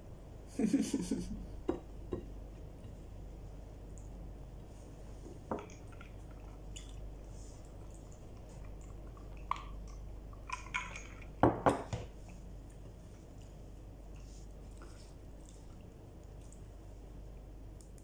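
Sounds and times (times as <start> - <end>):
knocks on ceramic: 11.4 - 12.0.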